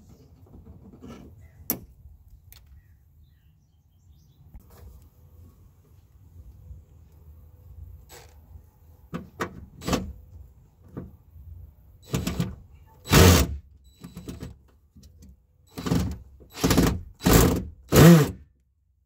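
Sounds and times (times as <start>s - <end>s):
cordless drill bursts: 13.0s - 13.6s, 15.7s - 18.4s.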